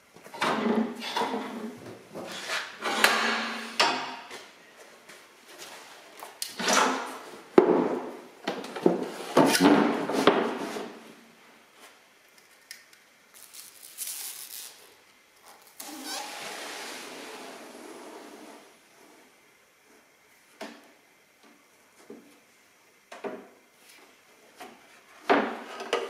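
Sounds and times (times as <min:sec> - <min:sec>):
sheet sliding scrape over mould: 0:16.2 - 0:18.7.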